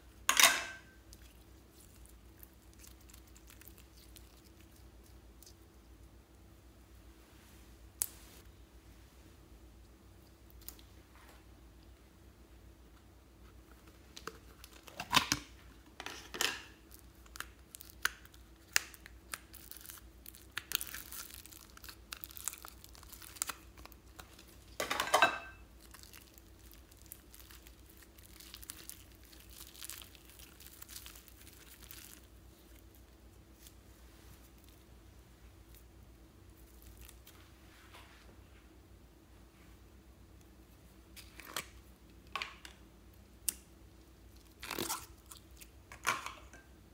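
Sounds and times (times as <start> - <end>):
slime crinkling and crackling: 1.0 - 6.2, 13.7 - 24.8, 25.6 - 34.9, 36.5 - 37.6, 43.4 - 46.0.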